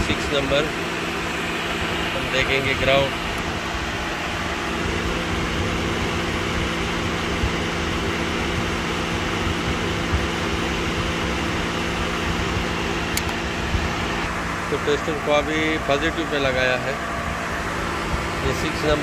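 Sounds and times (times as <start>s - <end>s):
electric cooling fan whirring: 0.0s - 19.0s
light click: 13.1s - 13.4s.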